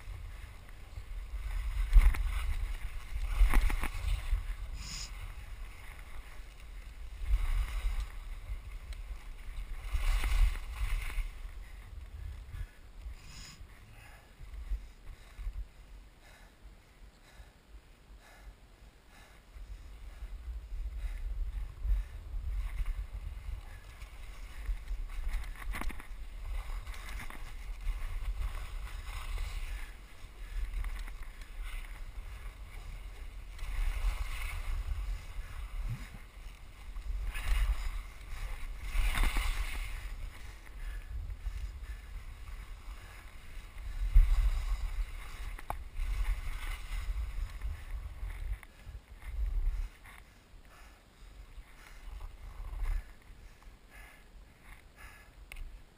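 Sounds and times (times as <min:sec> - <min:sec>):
skis carving on snow: 0:00.0 - 0:11.8, 0:22.6 - 0:53.6
wind buffeting microphone: 0:00.0 - 0:13.3, 0:19.1 - 0:55.2.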